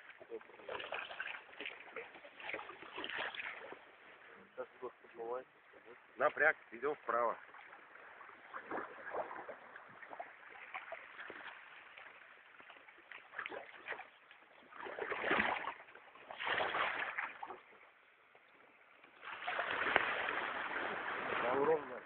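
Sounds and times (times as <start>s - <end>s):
paddles splashing in river water: 0.0s - 22.0s
loud surging water splashes: 19.2s - 22.0s.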